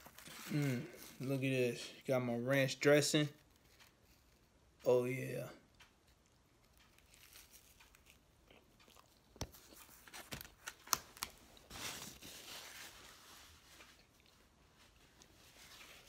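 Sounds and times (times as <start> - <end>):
person chewing pizza: 0.0 - 1.3, 5.7 - 16.0
crackly crunch: 0.0 - 1.5, 5.7 - 16.0.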